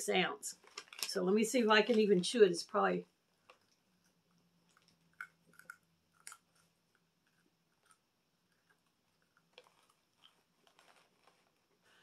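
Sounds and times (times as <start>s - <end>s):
crunching dried fruit: 0.5s - 1.2s, 4.6s - 12.0s.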